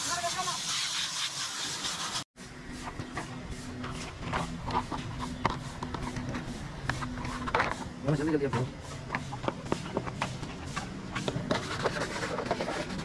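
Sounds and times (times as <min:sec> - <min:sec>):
hose spraying water: 0:00.0 - 0:02.3.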